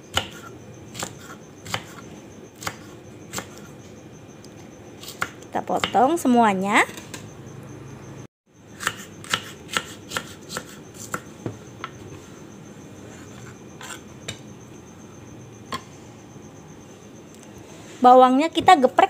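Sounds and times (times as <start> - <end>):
knife chopping on wooden board: 8.8 - 12.0.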